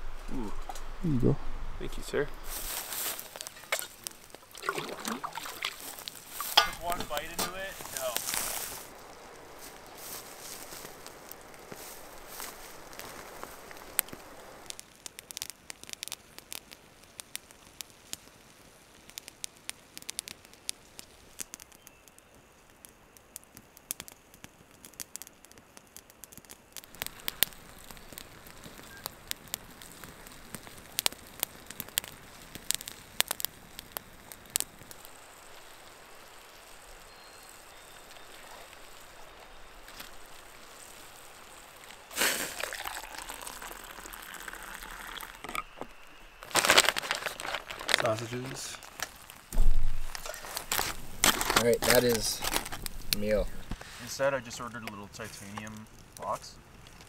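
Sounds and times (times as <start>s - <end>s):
campfire crackling and popping: 0.0s - 57.0s
water pouring into a mug: 4.5s - 6.1s, 42.2s - 45.7s.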